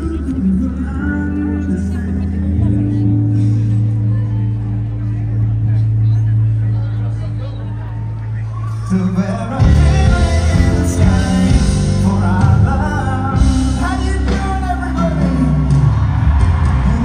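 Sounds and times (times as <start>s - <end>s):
person singing: 0.0s - 4.1s, 8.9s - 17.0s
bass: 0.0s - 17.0s
guitar: 0.0s - 17.0s.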